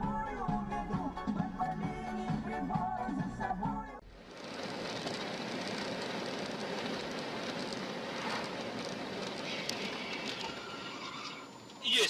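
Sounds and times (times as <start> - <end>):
car road and tyre noise: 4.0 - 12.0.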